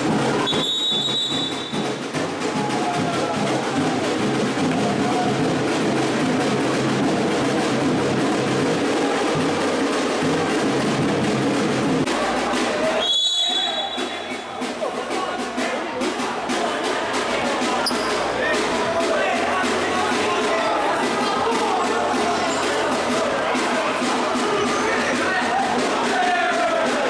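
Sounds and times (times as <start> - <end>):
drum-driven music: 0.0 - 27.0
whistle blowing: 0.4 - 1.9, 13.0 - 14.5.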